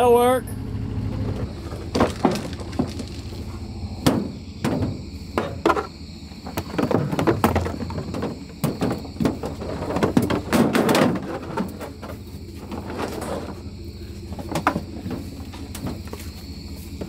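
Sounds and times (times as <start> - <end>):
decoys knocking and clattering: 1.2 - 3.4, 4.0 - 13.7, 14.3 - 16.2.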